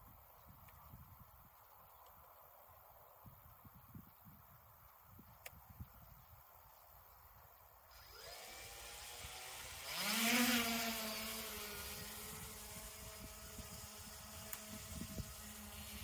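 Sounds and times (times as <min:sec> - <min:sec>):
drone motors whining: 0:07.9 - 0:16.0.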